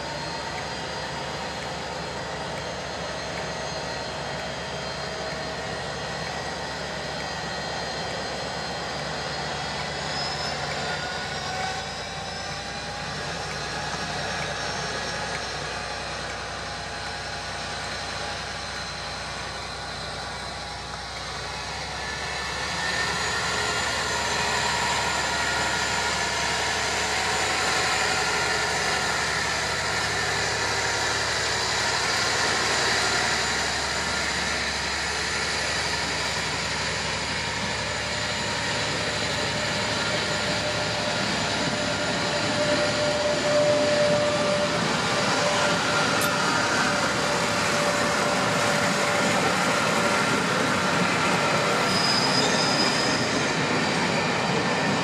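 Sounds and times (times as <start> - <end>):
diesel locomotive engine whining: 0.0 - 55.0.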